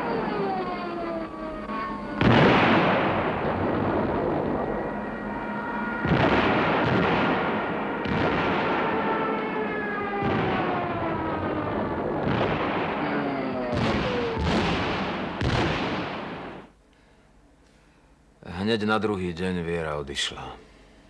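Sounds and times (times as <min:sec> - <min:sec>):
heavy artillery booms: 0:02.2 - 0:05.4, 0:06.0 - 0:16.7.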